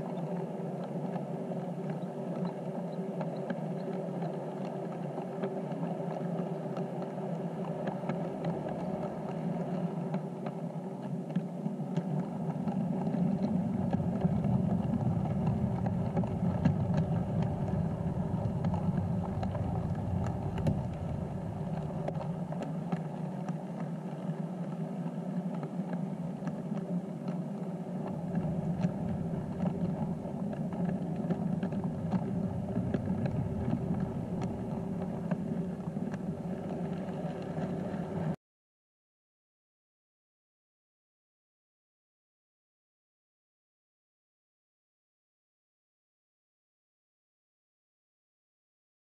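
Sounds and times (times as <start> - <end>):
model train rumbling on track: 13.5 - 22.5, 28.1 - 37.9.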